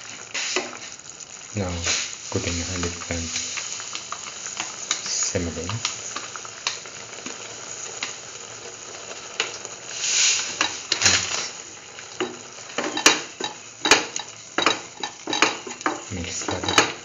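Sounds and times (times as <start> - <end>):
pan sizzling: 0.0 - 17.0
spoon scraping a pan: 10.1 - 11.4, 12.2 - 17.0.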